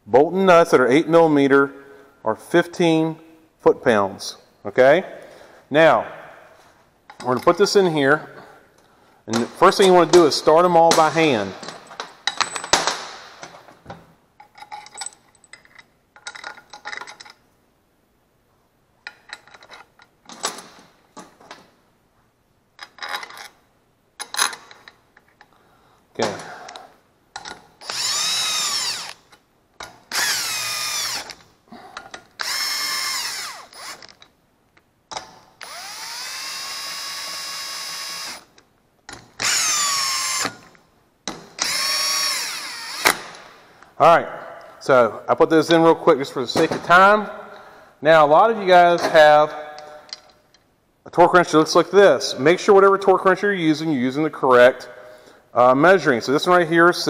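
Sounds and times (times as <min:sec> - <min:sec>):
bolts and tools clinking: 0:07.1 - 0:07.8, 0:09.3 - 0:17.6, 0:19.0 - 0:21.8, 0:22.7 - 0:23.6, 0:24.2 - 0:25.6, 0:26.2 - 0:43.9, 0:49.8 - 0:50.7
cordless drill motor whine: 0:27.8 - 0:29.2, 0:30.2 - 0:31.3, 0:32.4 - 0:34.0, 0:35.6 - 0:38.4.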